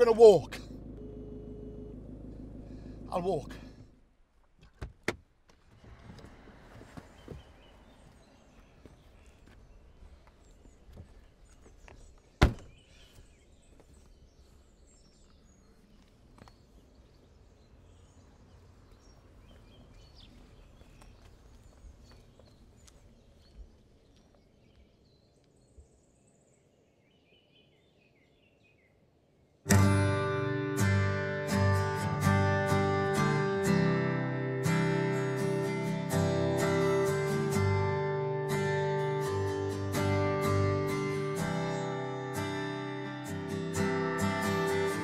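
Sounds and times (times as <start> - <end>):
sharp thunk: 12.4 - 12.8
strummed acoustic guitar music: 29.7 - 45.0.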